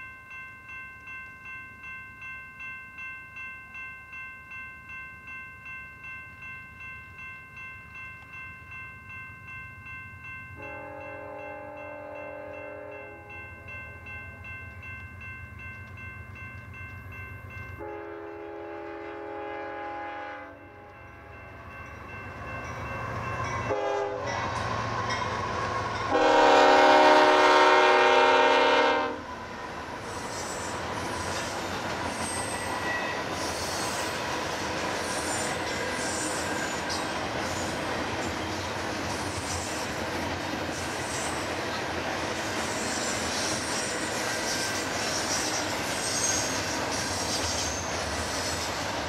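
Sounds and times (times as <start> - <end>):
locomotive air horn blasts: 10.6 - 13.2, 17.8 - 20.6, 23.7 - 24.3, 26.1 - 29.2
train wheels on rails: 20.7 - 49.0.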